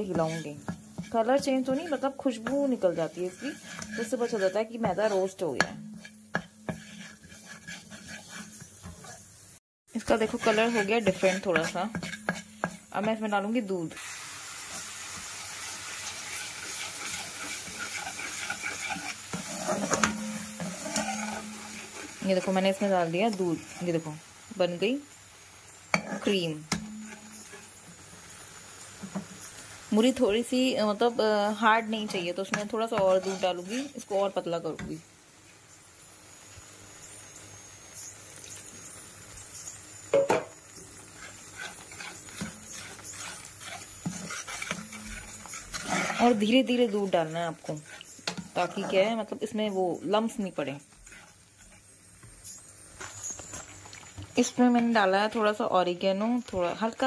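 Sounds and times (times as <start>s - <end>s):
metal skimmer stirring thick sauce: 0.0s - 9.2s, 9.9s - 13.1s, 14.7s - 24.0s, 31.8s - 34.1s, 41.0s - 49.4s, 50.7s - 51.9s
metal spoon scraping pan: 0.0s - 9.2s, 9.9s - 13.5s, 14.7s - 24.8s, 25.9s - 28.4s, 29.0s - 35.0s, 40.2s - 55.6s
milk sizzling in a hot pan: 0.0s - 57.0s.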